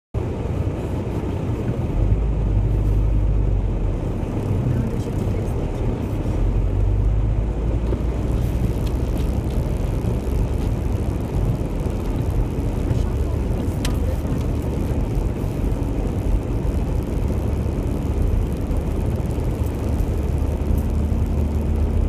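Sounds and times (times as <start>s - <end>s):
vehicle rumbling over snow: 0.2s - 22.0s.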